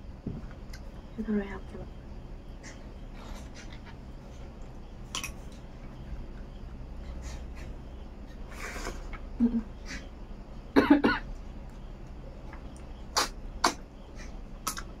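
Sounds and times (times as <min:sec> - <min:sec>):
mouth sounds: 0:13.1 - 0:13.9.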